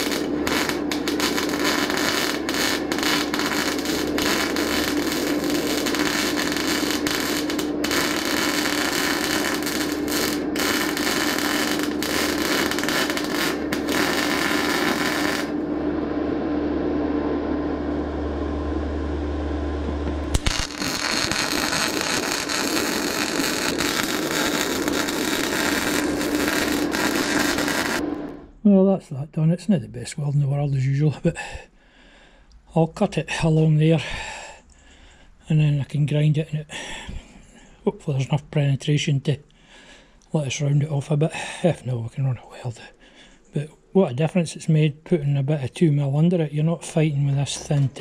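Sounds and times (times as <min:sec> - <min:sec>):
welding arc crackling: 0:00.0 - 0:15.6, 0:20.0 - 0:28.4, 0:47.0 - 0:48.0
steady hum: 0:00.0 - 0:48.0
arc striking snap: 0:20.2 - 0:28.4.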